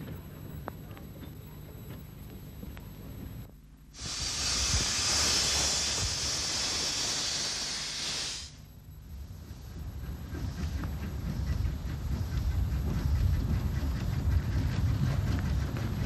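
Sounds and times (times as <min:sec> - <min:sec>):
steam locomotive hissing: 0:04.0 - 0:08.7.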